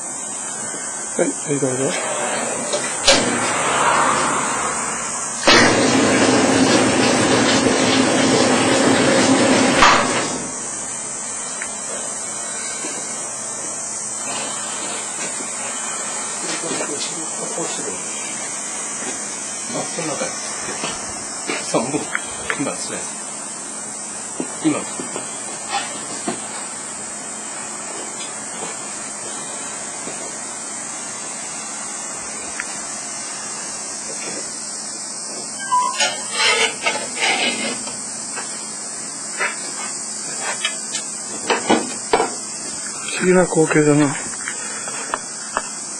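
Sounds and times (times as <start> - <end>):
machine running with mechanical hum: 0.0 - 45.9
steady hiss: 0.0 - 45.9
sharp machine clack: 5.3 - 10.6.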